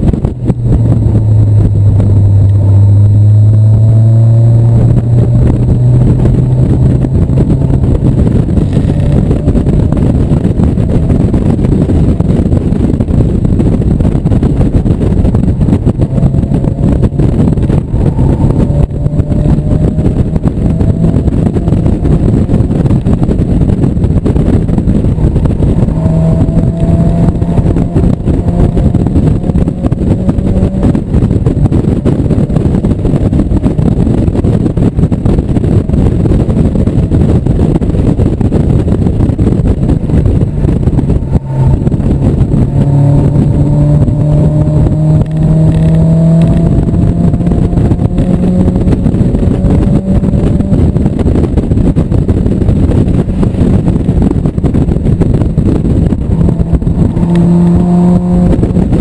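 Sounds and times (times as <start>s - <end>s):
car engine running hard: 0.0s - 59.0s
wind rush: 0.0s - 59.0s.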